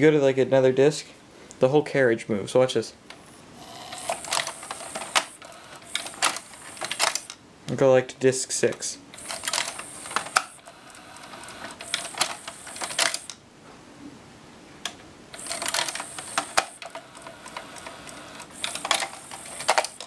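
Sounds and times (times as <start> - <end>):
disc changer mechanism clicking: 3.8 - 7.4, 9.2 - 13.4, 15.4 - 20.0.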